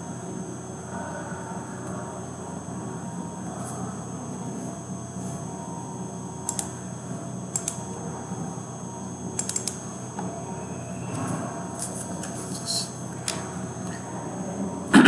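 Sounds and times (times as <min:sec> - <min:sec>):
steady low hum: 0:00.0 - 0:15.0
computer mouse clicking: 0:06.5 - 0:06.7, 0:07.5 - 0:07.8, 0:09.4 - 0:09.8.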